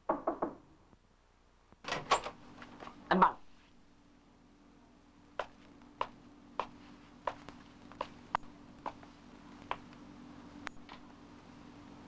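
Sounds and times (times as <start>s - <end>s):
steady low hum: 0.7s - 12.0s
footsteps of hard-soled shoes: 5.4s - 9.9s.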